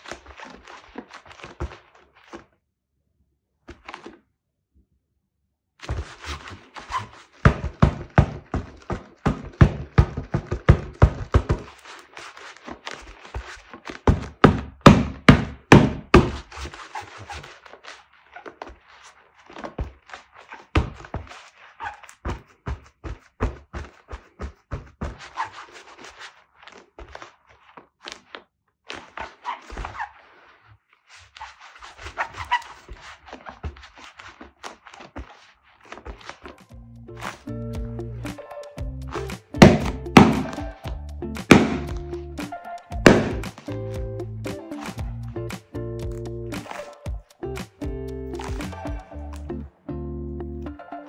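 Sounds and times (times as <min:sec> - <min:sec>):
dull thuds: 0:05.8 - 0:11.8, 0:12.7 - 0:16.8, 0:20.8 - 0:21.4, 0:32.2 - 0:49.0.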